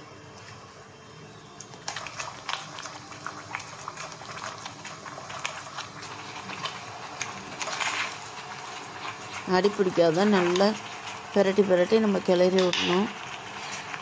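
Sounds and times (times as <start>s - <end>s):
thick mixture bubbling and popping: 0.2s - 14.0s.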